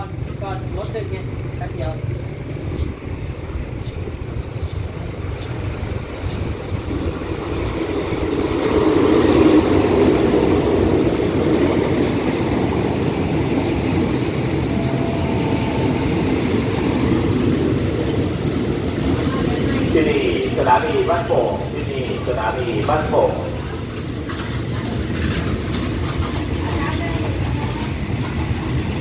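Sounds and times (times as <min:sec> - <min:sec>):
train rumbling over rails: 0:00.0 - 0:29.0
high brake squeal: 0:11.8 - 0:17.1, 0:23.2 - 0:29.0.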